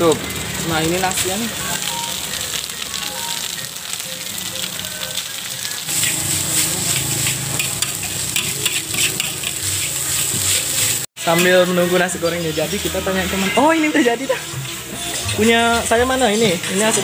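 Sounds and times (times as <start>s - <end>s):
rice sizzling in a wok: 0.0s - 17.0s
spatula scraping and clicking on wok: 6.0s - 13.6s.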